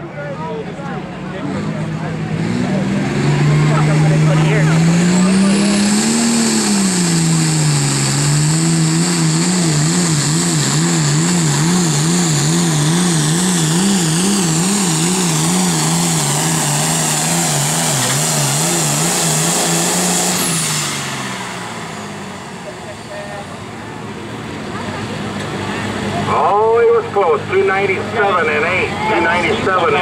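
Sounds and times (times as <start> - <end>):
tractor engine under load: 0.7 - 30.0.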